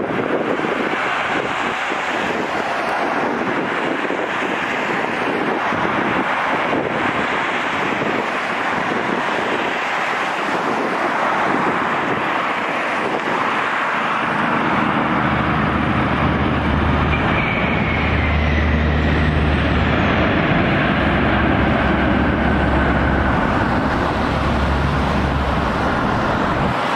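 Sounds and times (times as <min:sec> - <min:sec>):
deep rumble of plane rolling out: 0:00.0 - 0:26.9
jet noise rushing: 0:00.6 - 0:26.9.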